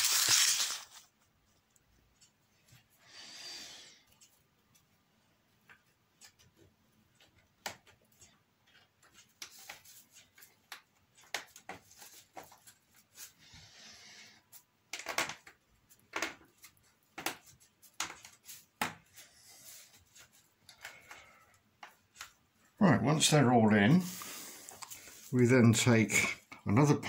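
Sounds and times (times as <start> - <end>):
soft rustling of hands: 15.8 - 22.8.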